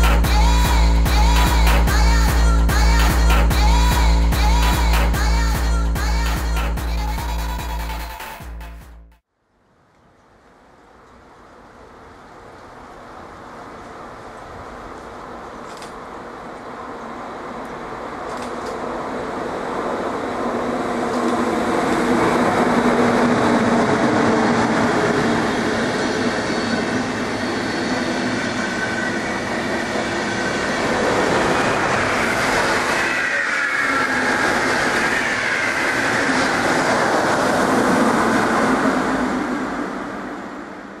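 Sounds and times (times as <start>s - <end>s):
high squeal falling in pitch: 26.0s - 37.4s.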